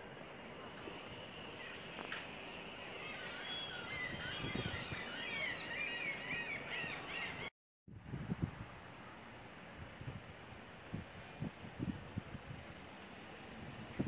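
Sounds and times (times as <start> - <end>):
birds chirping: 0.9 - 7.5.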